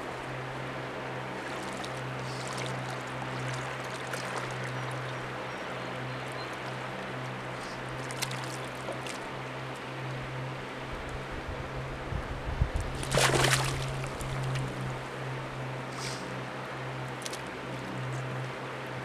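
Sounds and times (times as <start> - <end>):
steady low hum: 0.0 - 19.0
fish splashing and thrashing: 7.9 - 9.3, 12.9 - 14.7
water streaming off fish: 12.9 - 14.7.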